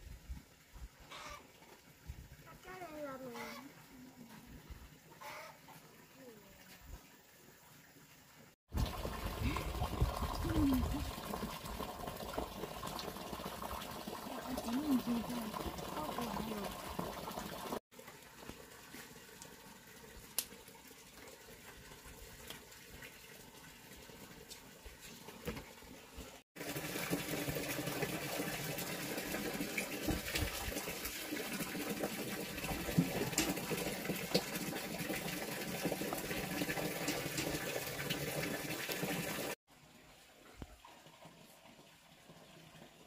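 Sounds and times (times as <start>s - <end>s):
water running and splashing: 0.0s - 43.0s.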